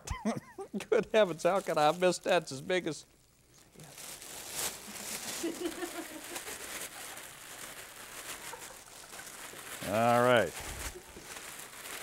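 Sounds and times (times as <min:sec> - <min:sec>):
plastic bag crinkling: 0:01.2 - 0:12.0.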